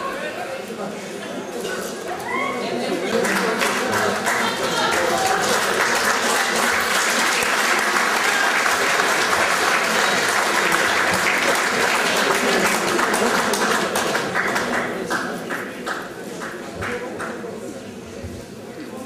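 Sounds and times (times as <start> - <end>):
crowd applauding: 2.7 - 17.5.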